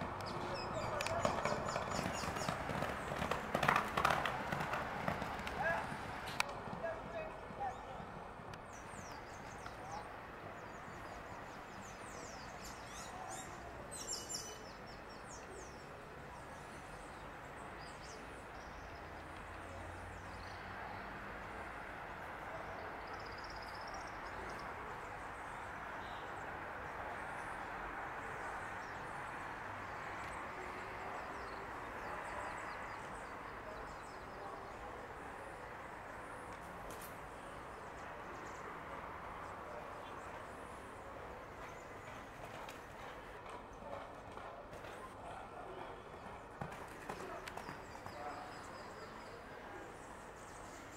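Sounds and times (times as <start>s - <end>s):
outdoor background noise: 0.0s - 50.9s.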